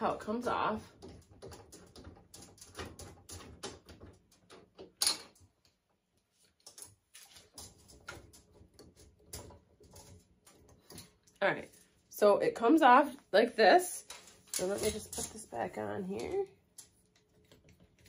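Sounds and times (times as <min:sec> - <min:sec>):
small metal clicks and scrapes: 0:06.4 - 0:11.4.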